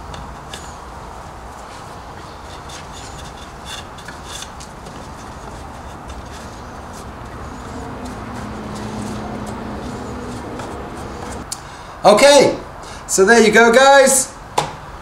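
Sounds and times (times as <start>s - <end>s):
cloth rubbing on wood: 1.6s - 11.4s.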